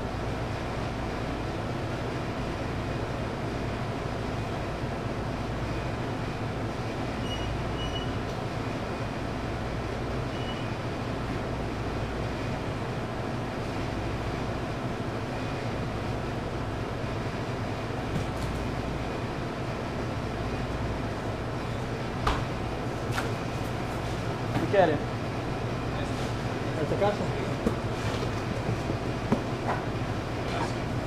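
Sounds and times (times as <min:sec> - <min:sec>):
kitchen machinery rumble and hum: 0:00.0 - 0:31.0.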